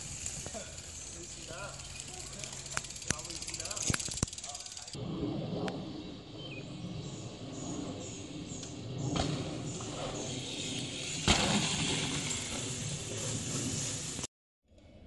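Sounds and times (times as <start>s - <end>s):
bike landing thump: 9.0s - 10.2s, 11.1s - 12.8s.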